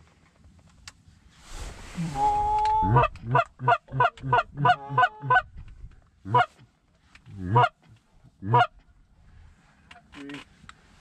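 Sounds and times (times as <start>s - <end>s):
geese honking: 2.2s - 5.4s, 7.4s - 7.8s, 8.4s - 8.7s.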